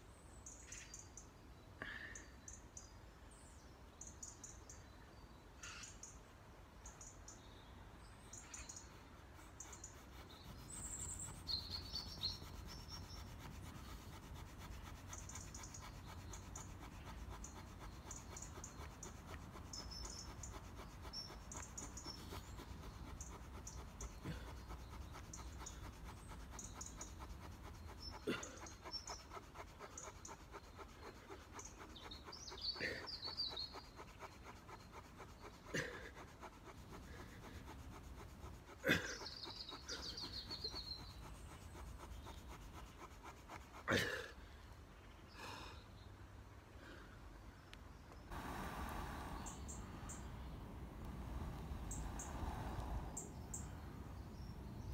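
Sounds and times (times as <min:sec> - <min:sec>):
birds chirping: 0:06.8 - 0:44.2, 0:47.4 - 0:54.9
wooden stick rasping on wood: 0:08.9 - 0:44.1.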